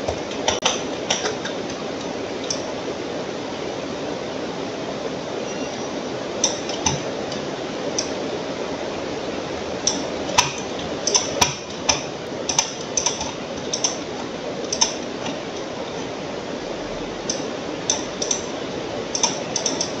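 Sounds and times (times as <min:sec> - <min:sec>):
steady hiss: 0:00.0 - 0:20.0
computer mouse clicks: 0:09.9 - 0:14.0, 0:14.7 - 0:15.4, 0:17.2 - 0:18.5, 0:19.2 - 0:20.0.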